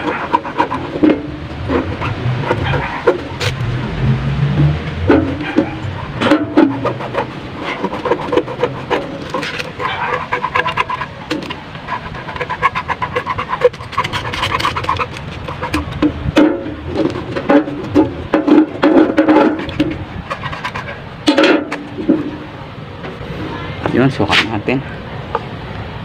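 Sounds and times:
hacksaw sawing through rubber hose: 0:00.0 - 0:03.6, 0:05.1 - 0:21.0.

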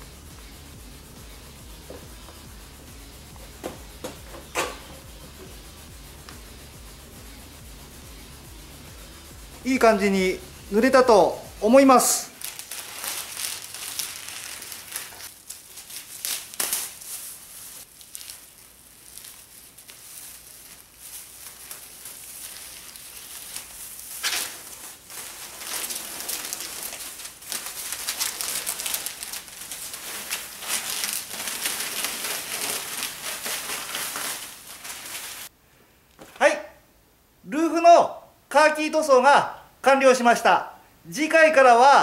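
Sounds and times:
masking paper and film crinkling: 0:10.8 - 0:35.5
sharp plastic crackles: 0:12.3 - 0:35.5.

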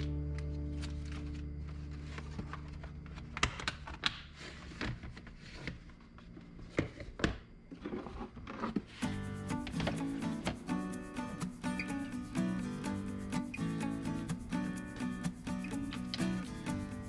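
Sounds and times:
background music: 0:00.0 - 0:03.2, 0:09.0 - 0:17.0.

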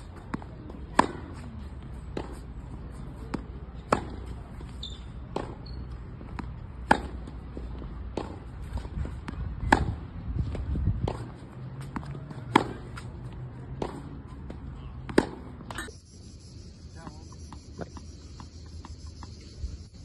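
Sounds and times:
racket striking tennis ball: 0:00.0 - 0:01.4, 0:02.1 - 0:15.9
tennis ball bouncing: 0:00.0 - 0:15.9, 0:17.0 - 0:19.6.

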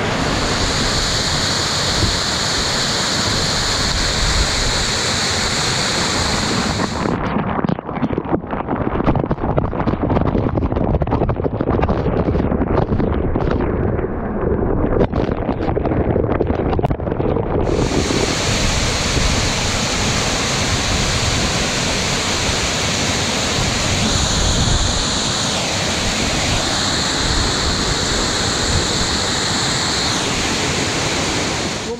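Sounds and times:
waterfall rushing: 0:00.0 - 0:07.2, 0:17.7 - 0:31.9
spray beating on camera: 0:17.6 - 0:30.0.

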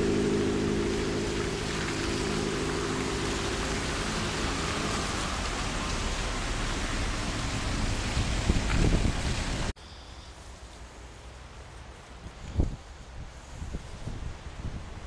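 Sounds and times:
car engine humming: 0:00.0 - 0:08.5
outdoor hiss: 0:00.0 - 0:15.0.

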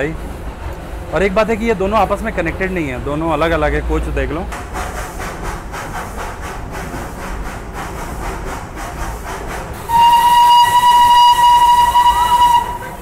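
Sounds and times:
steam locomotive chuffing: 0:00.0 - 0:13.0
steam whistle blast: 0:09.8 - 0:13.0.

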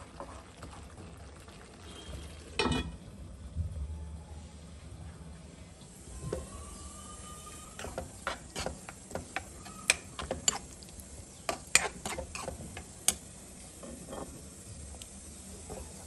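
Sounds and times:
spoon knocking and scraping pan: 0:07.7 - 0:10.8, 0:11.4 - 0:14.4.

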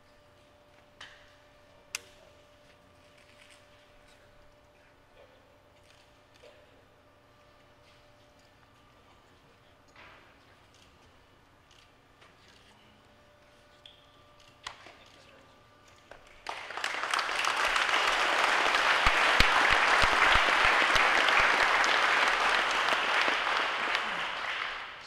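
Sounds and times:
sharp close claps: 0:16.1 - 0:25.0
audience applause: 0:16.4 - 0:25.0.

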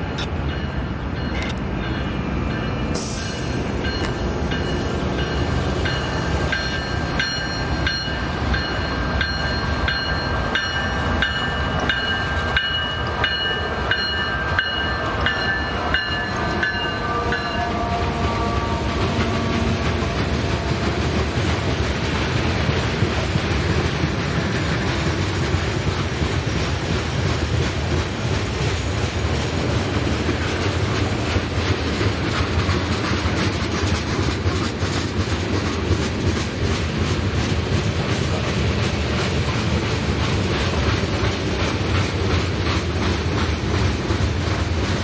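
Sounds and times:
freight train cars rumbling: 0:00.0 - 0:45.0
rail-joint clicks: 0:00.0 - 0:45.0
train wheels squealing: 0:00.1 - 0:21.6.

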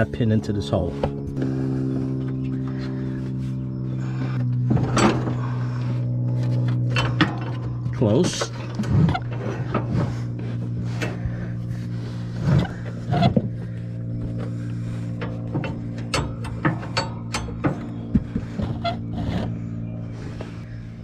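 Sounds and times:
steady low hum: 0:00.0 - 0:21.0
metallic knocks and clicks of mower: 0:04.4 - 0:05.5, 0:06.3 - 0:11.3, 0:14.2 - 0:19.6.

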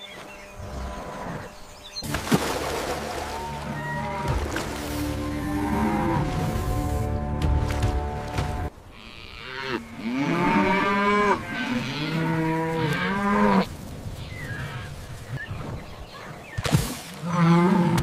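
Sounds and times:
cattle mooing: 0:05.1 - 0:07.0, 0:09.0 - 0:13.7.

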